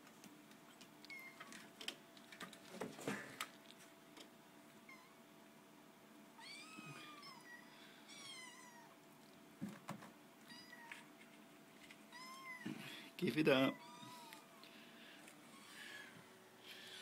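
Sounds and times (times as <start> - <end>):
kittens mewing: 6.4 - 9.0.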